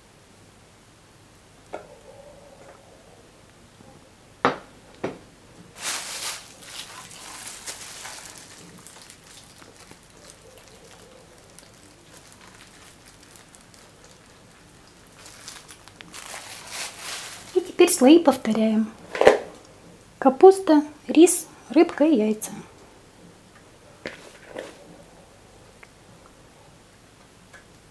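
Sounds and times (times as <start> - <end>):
plastic bag crinkling: 5.7 - 19.7.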